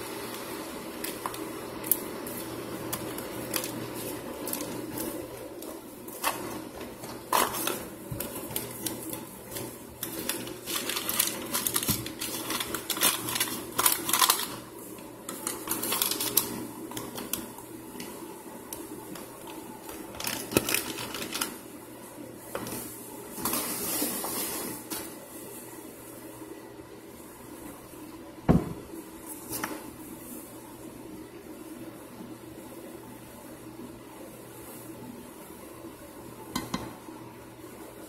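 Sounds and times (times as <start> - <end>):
starch crunching in a skillet: 0.2 - 21.6.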